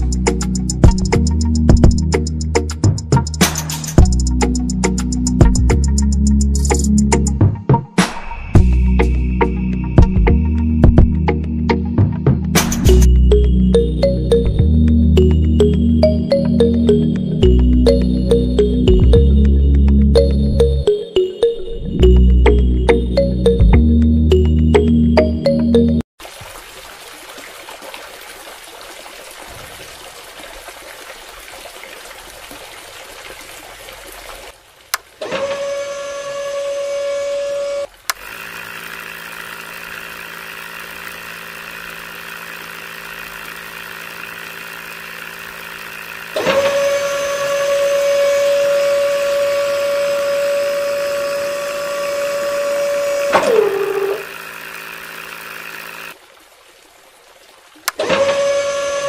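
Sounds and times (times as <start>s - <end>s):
water trickling: 26.2s - 35.2s
small electric motor whine: 35.2s - 56.2s, 58.0s - 59.0s.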